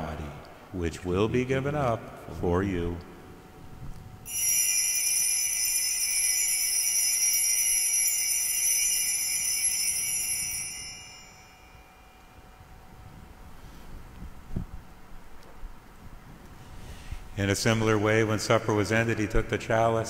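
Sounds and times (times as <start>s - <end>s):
altar bells jingling: 4.3s - 12.3s.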